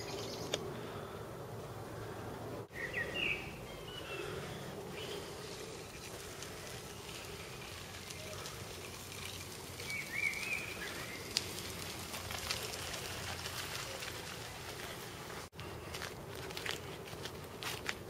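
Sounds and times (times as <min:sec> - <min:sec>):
rustling hiss: 0:04.1 - 0:15.5.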